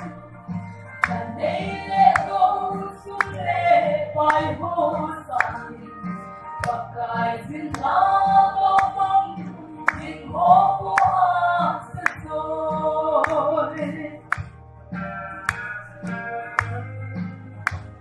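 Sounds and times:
voices singing: 0:01.0 - 0:14.4.

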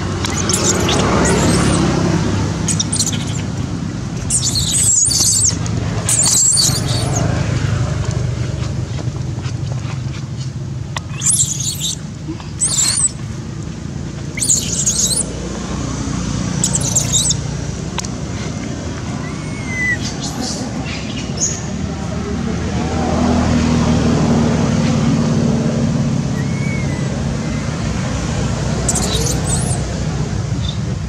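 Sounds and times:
baby monkey squealing: 0:00.0 - 0:07.5, 0:11.0 - 0:21.6, 0:26.2 - 0:29.9.

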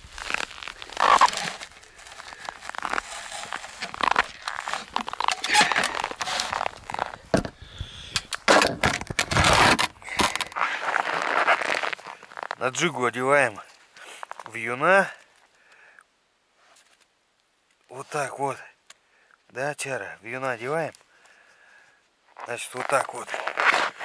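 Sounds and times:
snow crunching: 0:00.0 - 0:07.3, 0:09.3 - 0:14.7, 0:22.4 - 0:24.0
winter clothing rustling: 0:00.0 - 0:08.0, 0:09.3 - 0:14.7, 0:22.2 - 0:24.0.

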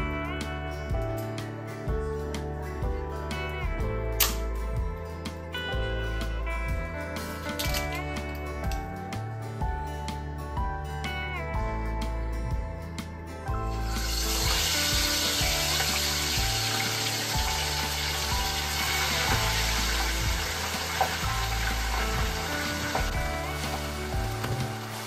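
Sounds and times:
background music: 0:00.0 - 0:25.0
fish sizzling in hot oil: 0:13.8 - 0:25.0.

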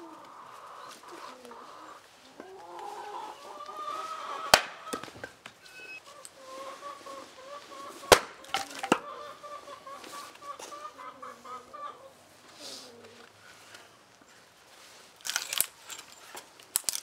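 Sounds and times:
chickens clucking: 0:00.0 - 0:14.1
hatchet chopping log: 0:04.5 - 0:05.1, 0:08.1 - 0:09.0.

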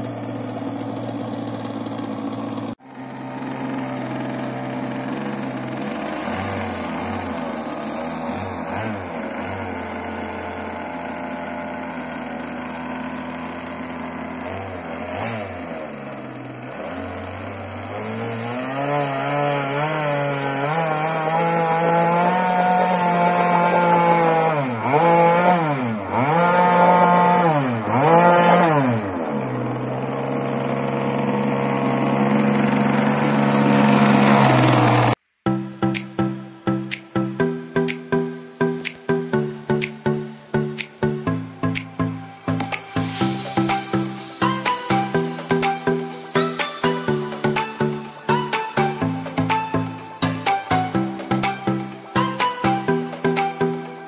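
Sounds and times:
two-stroke engine revving: 0:00.0 - 0:54.0.

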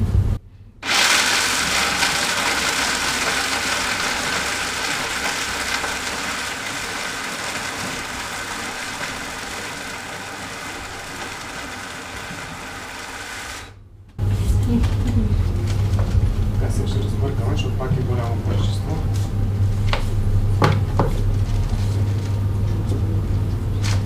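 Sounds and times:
blender running: 0:00.8 - 0:13.8.

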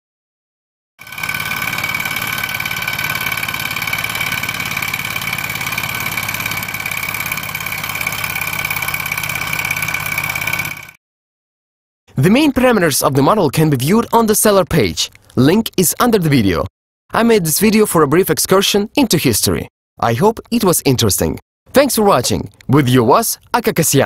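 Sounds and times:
steady high whine: 0:01.0 - 0:10.9
engine model mechanical chatter: 0:01.0 - 0:11.0.

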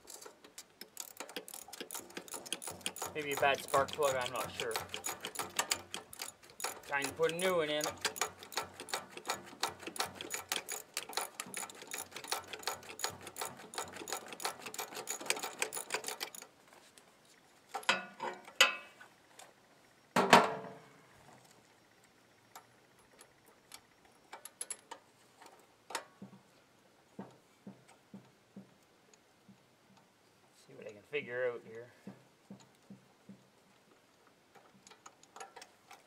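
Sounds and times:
ratchet wrench clicking: 0:00.9 - 0:16.4.

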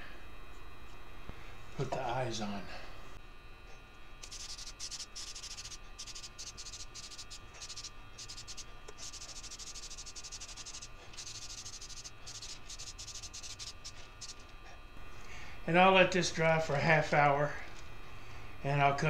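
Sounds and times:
aerosol spray can hissing: 0:04.2 - 0:14.5.

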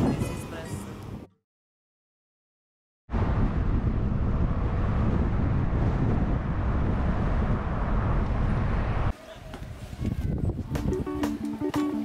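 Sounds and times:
wind buffeting microphone: 0:00.0 - 0:01.3, 0:03.1 - 0:11.4
car road noise: 0:03.1 - 0:09.2.

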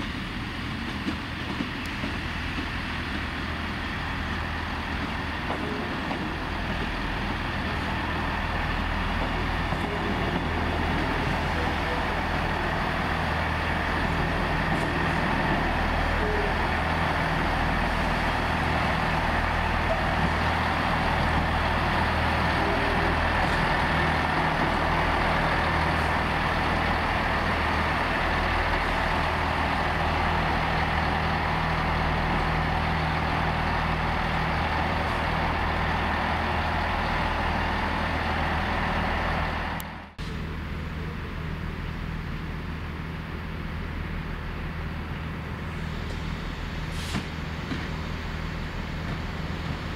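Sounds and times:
diesel train engines droning: 0:00.0 - 0:49.9.

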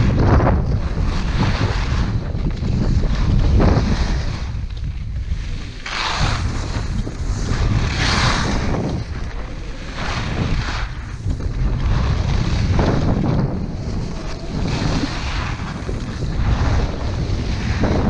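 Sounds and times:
ski edges scraping on snow: 0:00.0 - 0:18.0
wind buffeting microphone: 0:00.0 - 0:18.0.

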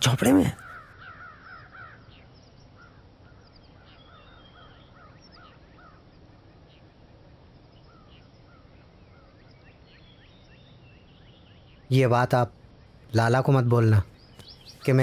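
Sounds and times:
birds chirping: 0:00.0 - 0:15.0
low outdoor hum: 0:00.0 - 0:15.0.

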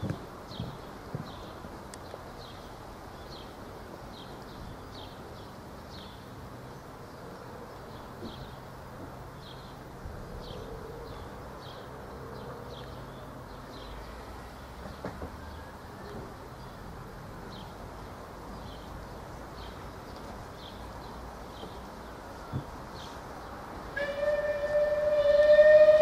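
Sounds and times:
miniature steam locomotive: 0:24.0 - 0:26.0.

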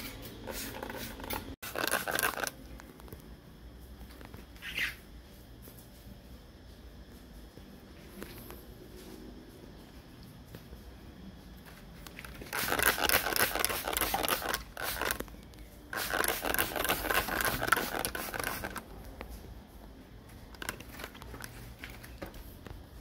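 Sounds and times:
water spraying hiss: 0:12.4 - 0:15.2, 0:15.9 - 0:18.8.

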